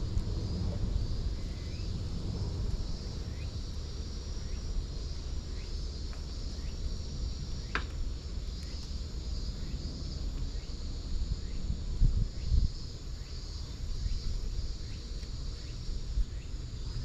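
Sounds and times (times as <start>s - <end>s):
low rumble: 0.0s - 6.0s
insects buzzing: 0.0s - 17.0s.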